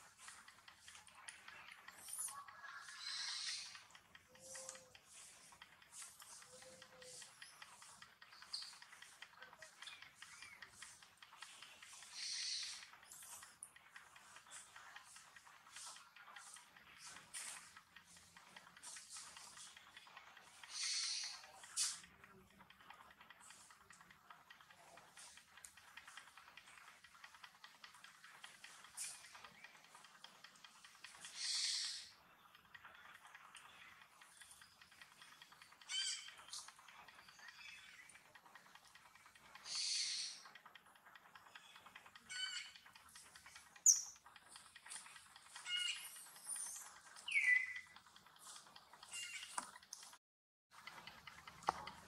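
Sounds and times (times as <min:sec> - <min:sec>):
high-pitched bird calls: 0:02.0 - 0:05.3, 0:06.0 - 0:11.0, 0:11.8 - 0:13.4, 0:20.6 - 0:22.0, 0:31.1 - 0:32.2, 0:33.6 - 0:38.3, 0:39.5 - 0:40.6, 0:41.5 - 0:44.2, 0:44.9 - 0:48.0, 0:49.0 - 0:49.6.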